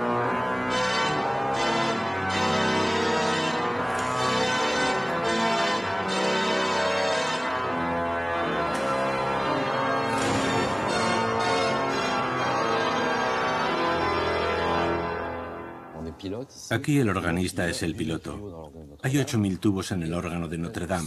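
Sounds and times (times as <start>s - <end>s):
pipe organ playing sustained chords: 0.0s - 16.4s.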